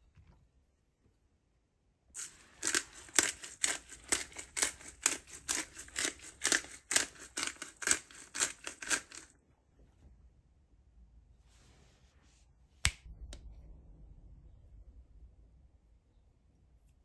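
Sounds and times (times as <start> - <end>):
pepper mill grinding: 2.2 - 9.3.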